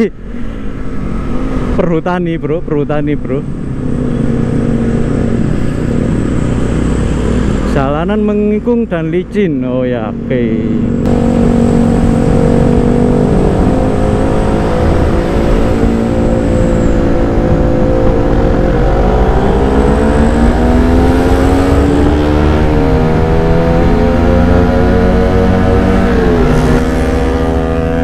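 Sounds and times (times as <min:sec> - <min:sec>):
motorcycle engine running: 0:10.6 - 0:28.0.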